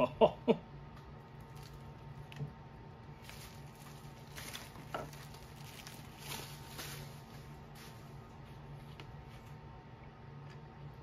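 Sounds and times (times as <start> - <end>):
faint low hum: 0.0 - 11.0
bubble wrap crinkling: 1.3 - 9.4.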